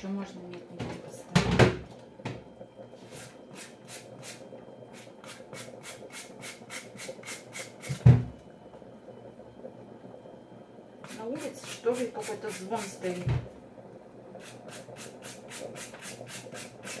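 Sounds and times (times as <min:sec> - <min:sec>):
loud thump: 0:08.0 - 0:08.3.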